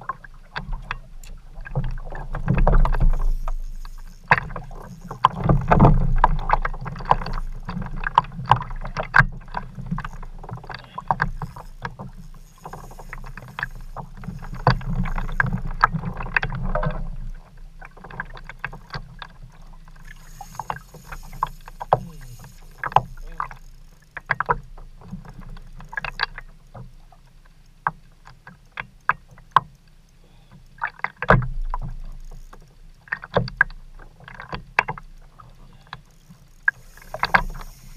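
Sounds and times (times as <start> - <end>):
clicks and knocks from fishing gear: 0.0 - 29.9, 30.5 - 37.9.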